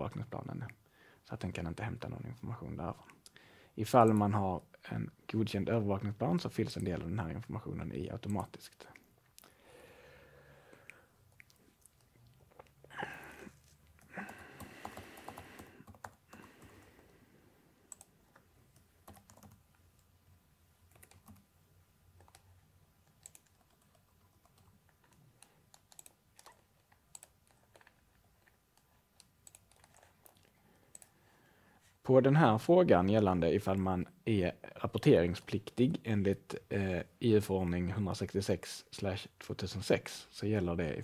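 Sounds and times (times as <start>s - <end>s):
typing on keyboard: 14.0s - 16.9s, 18.7s - 20.1s, 20.9s - 21.4s, 22.2s - 27.8s.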